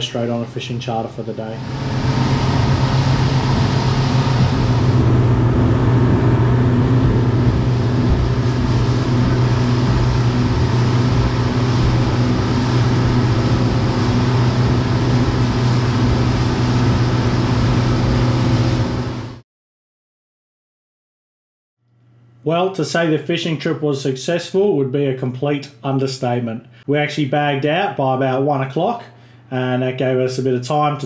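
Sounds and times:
vehicle engine humming: 0:01.5 - 0:19.3.

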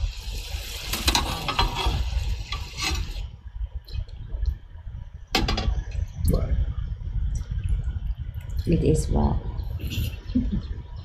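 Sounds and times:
meat sizzling: 0:00.0 - 0:03.2
metal ladle scraping a pan: 0:00.0 - 0:03.3.

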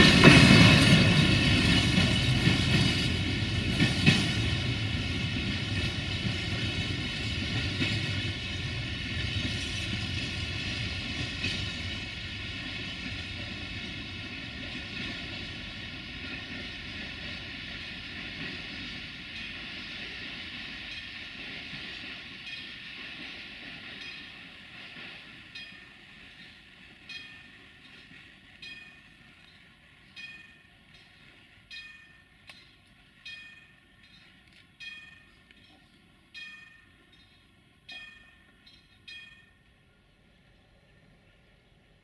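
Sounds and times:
freight train rumbling: 0:00.0 - 0:42.0
level-crossing warning bell: 0:18.4 - 0:40.1.

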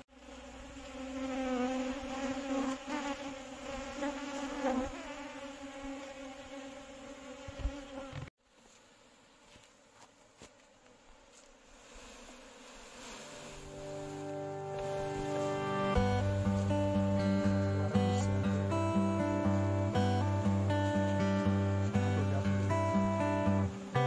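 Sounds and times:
bees buzzing: 0:00.0 - 0:24.0.

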